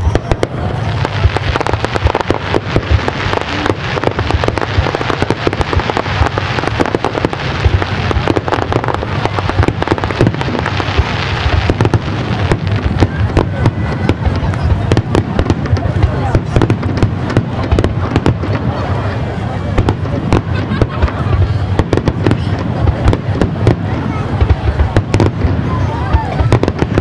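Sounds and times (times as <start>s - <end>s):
fireworks crackling: 0.0s - 27.0s
rumble of bursting shells: 1.2s - 18.7s.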